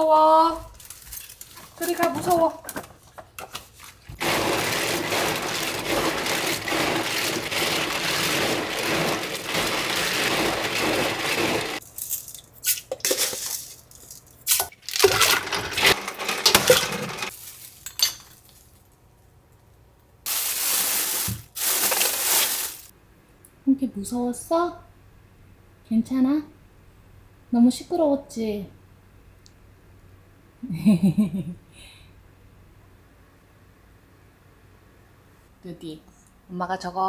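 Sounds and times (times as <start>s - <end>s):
plastic bag crackling: 4.2s - 11.9s, 15.0s - 18.8s, 20.3s - 22.9s.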